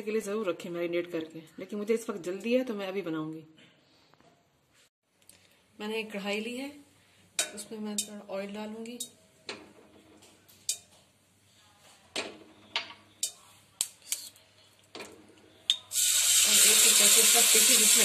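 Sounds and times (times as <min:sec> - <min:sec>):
chicken sizzling in oil: 0:15.9 - 0:18.0.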